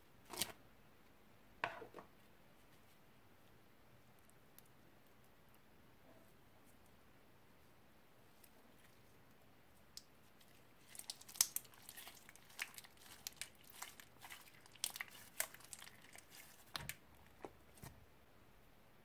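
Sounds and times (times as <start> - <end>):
slime kneaded by hand: 9.8 - 18.0.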